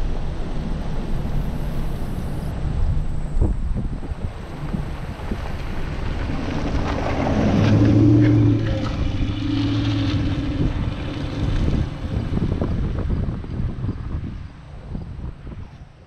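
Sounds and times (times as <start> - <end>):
tyres rumbling on gravel: 0.0 - 14.5
engine hum: 0.0 - 16.0
wind buffeting microphone: 0.0 - 16.0.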